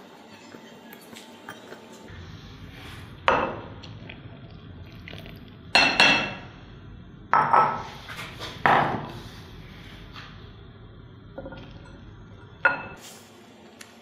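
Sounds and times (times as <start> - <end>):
bowls clinking on stone countertop: 11.4 - 13.0.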